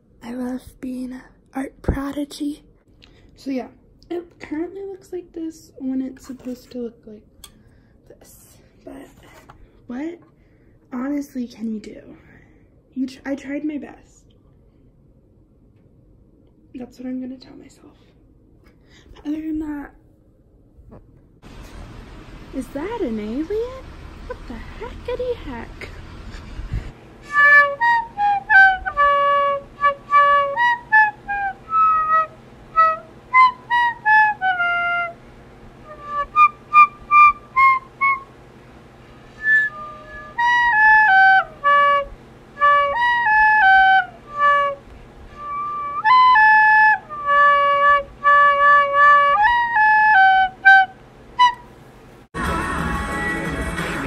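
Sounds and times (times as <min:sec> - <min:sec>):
solo flute-like melody: 0:27.2 - 0:35.2, 0:35.8 - 0:38.3, 0:39.3 - 0:51.7.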